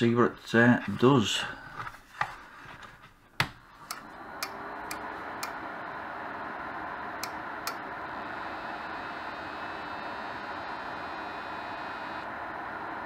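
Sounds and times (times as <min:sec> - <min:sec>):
fans whirring: 0:00.0 - 0:13.0
power switch click: 0:07.2 - 0:07.8.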